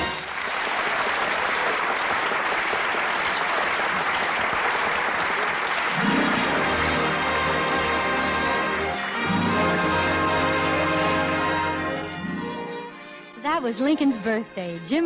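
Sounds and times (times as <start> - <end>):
orchestra playing: 0.0 - 0.7, 5.8 - 15.0
audience applauding: 0.0 - 9.3.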